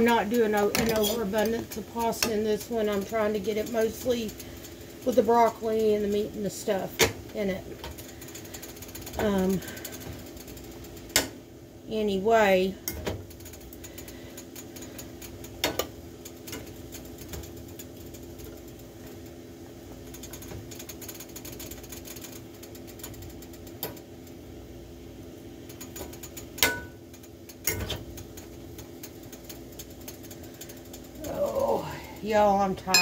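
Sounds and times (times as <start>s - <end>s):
utensil clanking against pan: 25.7s - 31.1s, 32.8s - 33.0s.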